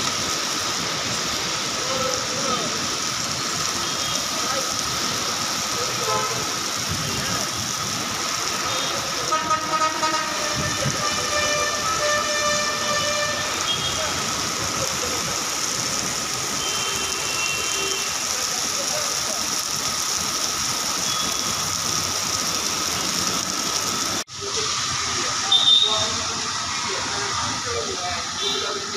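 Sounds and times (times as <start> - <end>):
heavy rain pouring: 0.0 - 28.9
traffic passing: 0.0 - 28.9
vehicle horn: 6.0 - 6.5, 8.7 - 14.2, 16.6 - 18.2, 25.5 - 26.0.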